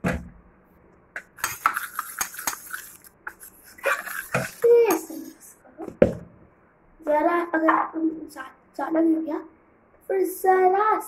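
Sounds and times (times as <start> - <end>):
metal spoon scraping steel bowl: 1.4 - 5.3.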